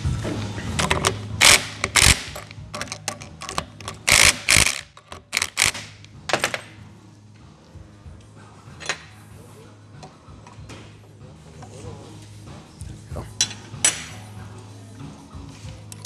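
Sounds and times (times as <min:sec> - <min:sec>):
impact wrench hammering: 0:00.8 - 0:06.6.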